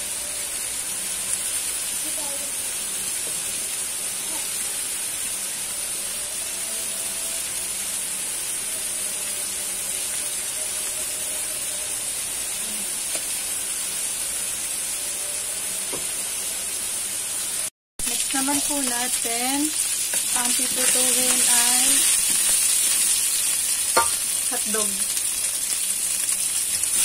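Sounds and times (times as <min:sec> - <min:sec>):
chicken sizzling in a pan: 0:00.0 - 0:27.0.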